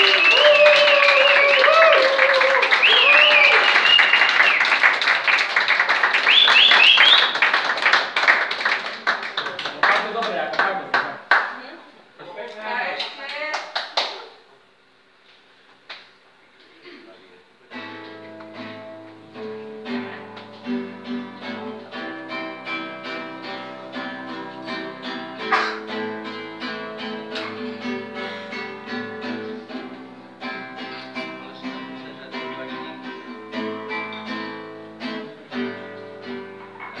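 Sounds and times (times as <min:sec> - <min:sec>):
acoustic guitar strumming: 0:17.7 - 0:37.0.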